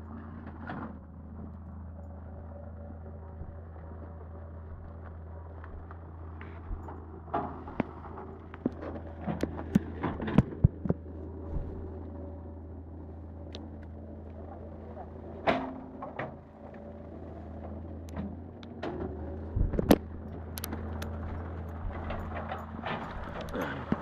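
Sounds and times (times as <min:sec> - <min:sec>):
low hum: 0:00.0 - 0:24.0
footsteps on dirt path: 0:04.6 - 0:12.0.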